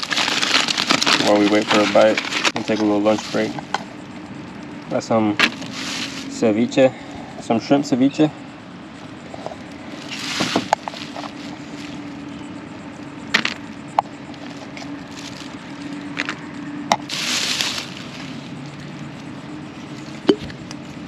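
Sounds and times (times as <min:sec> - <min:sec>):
plastic bag rustling: 0:00.0 - 0:03.7, 0:05.4 - 0:06.4, 0:09.2 - 0:12.4, 0:13.4 - 0:16.4, 0:17.0 - 0:20.3
low vehicle hum: 0:00.0 - 0:21.0.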